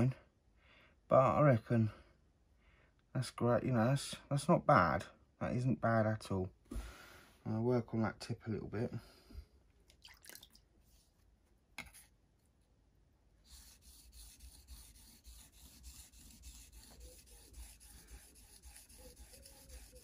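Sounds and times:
knife blade strokes on whetstone: 13.5s - 20.0s.

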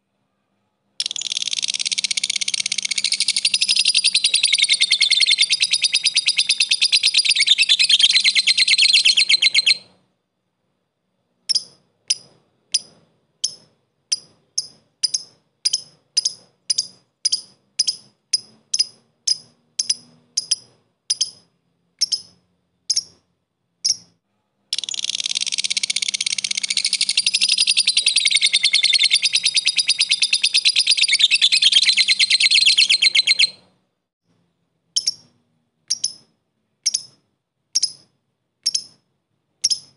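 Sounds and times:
lovebird trilling and chirping: 1.0s - 9.9s, 11.4s - 23.2s, 23.8s - 24.2s, 24.8s - 33.6s, 35.0s - 39.0s, 39.6s - 39.9s.

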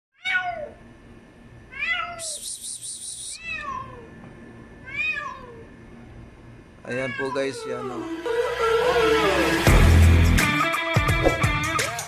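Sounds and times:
cat meowing: 0.2s - 0.8s, 1.7s - 2.4s, 3.4s - 4.1s, 4.8s - 5.7s, 6.9s - 9.6s
high pulsing buzz: 7.7s - 10.6s.

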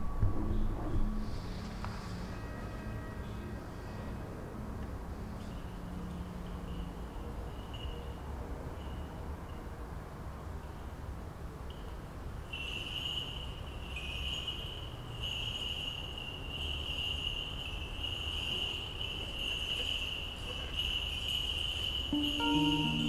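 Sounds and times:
high-pitched trill: 22.1s - 23.0s.

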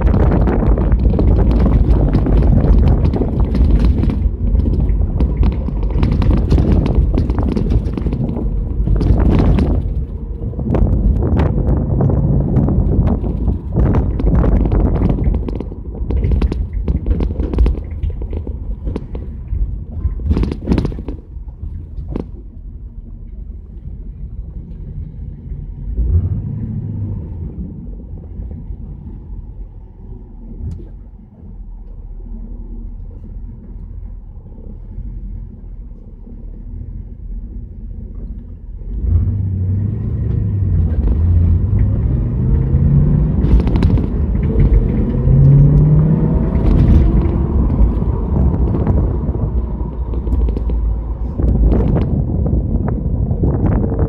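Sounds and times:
car engine and road rumble: 0.0s - 54.0s
sharp knocks: 12.5s - 21.3s.

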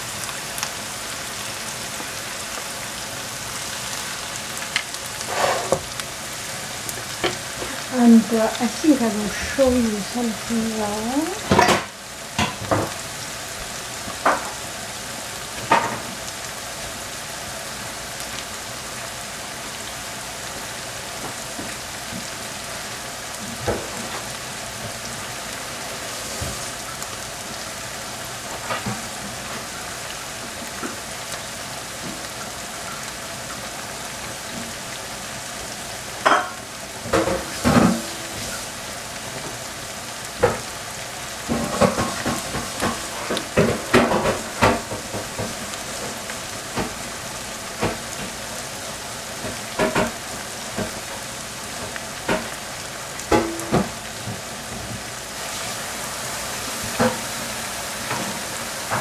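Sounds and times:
onions sizzling in a frying pan: 0.0s - 59.0s.

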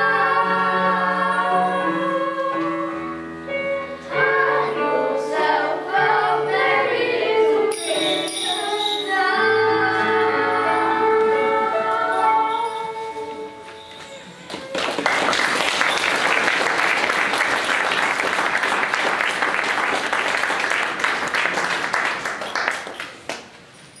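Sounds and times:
children singing: 0.0s - 14.7s
audience clapping: 14.5s - 23.7s.

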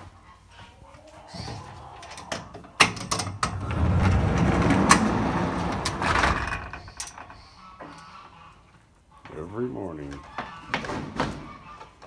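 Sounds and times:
loud rustling and rumbling: 3.3s - 7.3s.

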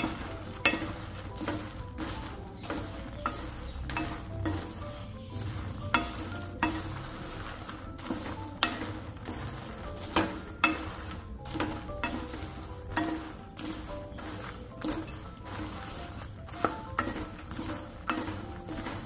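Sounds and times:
wooden spatula scraping pan: 0.0s - 19.0s.

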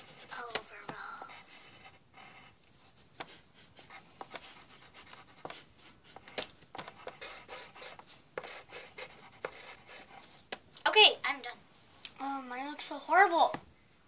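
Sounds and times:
pencil scratching on paper: 0.0s - 10.6s.

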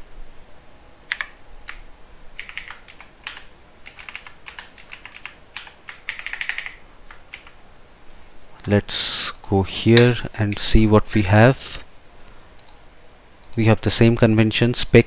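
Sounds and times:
typing on a computer keyboard: 1.1s - 1.8s, 2.4s - 7.6s.

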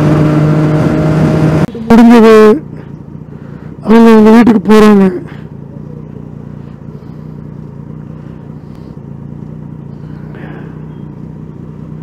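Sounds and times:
motorcycle engine idling: 1.7s - 12.0s.

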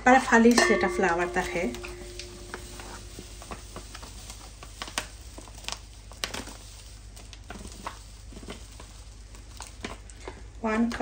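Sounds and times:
plastic packet crinkling: 1.8s - 11.0s
flour pouring into cup: 2.0s - 10.6s.

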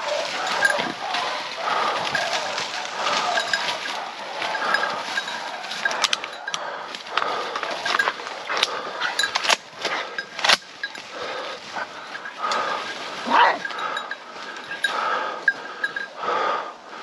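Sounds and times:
rustling in dry leaves: 0.0s - 17.0s
twigs snapping: 0.1s - 11.3s.

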